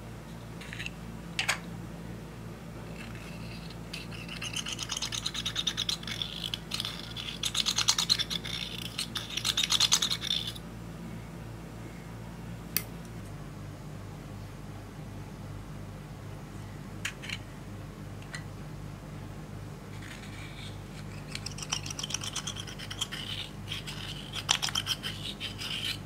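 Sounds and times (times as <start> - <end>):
spatula scratching eyeshadow: 2.9 - 10.6, 19.9 - 26.0.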